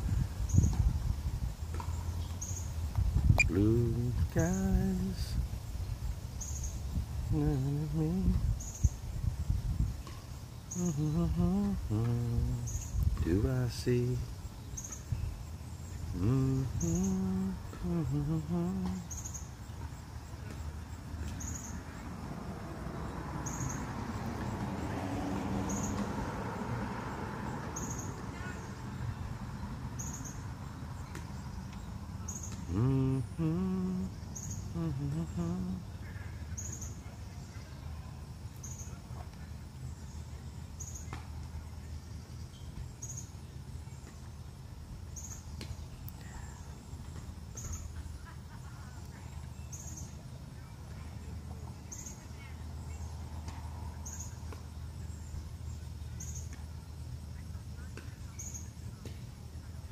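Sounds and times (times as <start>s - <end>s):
wind rumbling on microphone: 0.0s - 15.5s
short high chirp: 3.4s - 3.6s
faint bird calls: 3.4s - 4.6s.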